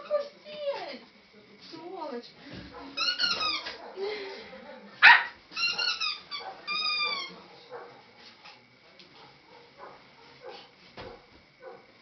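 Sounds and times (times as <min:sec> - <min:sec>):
rustling and shuffling: 0:05.4 - 0:12.0.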